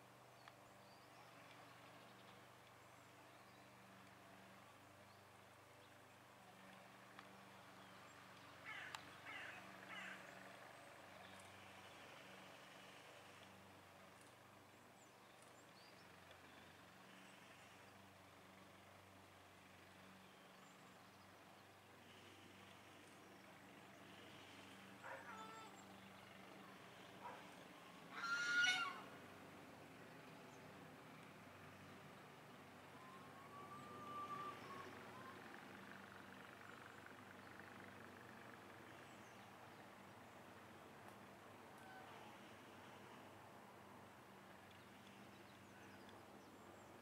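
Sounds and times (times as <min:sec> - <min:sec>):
harsh animal calls: 0:28.1 - 0:29.1.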